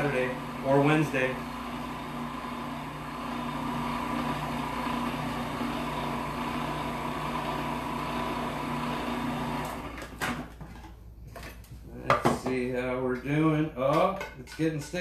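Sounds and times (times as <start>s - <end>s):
food processor motor grinding: 0.0s - 10.6s.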